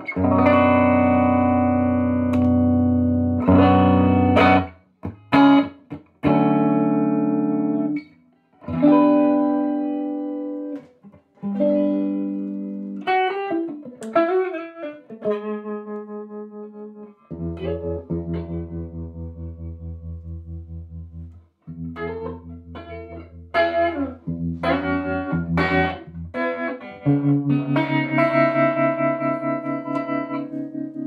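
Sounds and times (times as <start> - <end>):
bent guitar notes: 0.0 - 31.0
electric guitar chords: 0.0 - 31.0.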